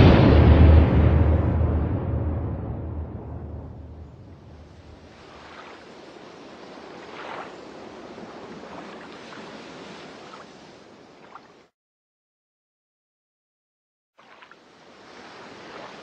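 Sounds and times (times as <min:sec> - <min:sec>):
deep rumble: 0:00.0 - 0:05.2
steady rushing noise: 0:00.0 - 0:06.4.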